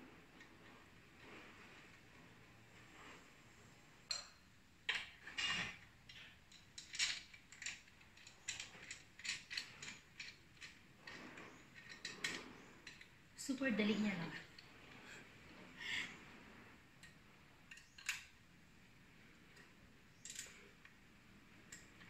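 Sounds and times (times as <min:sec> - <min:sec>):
plastic parts clicking and knocking: 0:04.8 - 0:10.8, 0:17.0 - 0:18.3.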